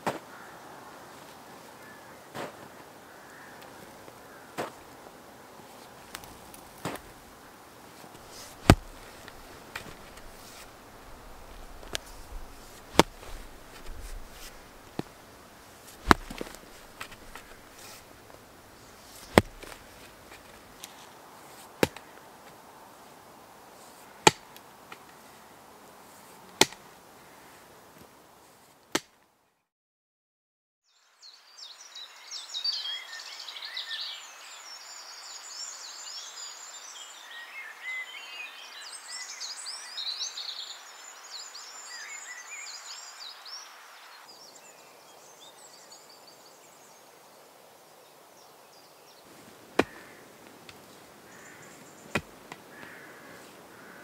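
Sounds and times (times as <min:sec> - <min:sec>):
digging tool chopping into earth: 0:00.0 - 0:00.3, 0:02.3 - 0:02.6, 0:04.6 - 0:04.8, 0:06.1 - 0:07.2, 0:08.1 - 0:21.0, 0:21.6 - 0:22.1, 0:24.2 - 0:25.0, 0:26.6 - 0:26.9, 0:28.9 - 0:29.1, 0:49.7 - 0:53.1.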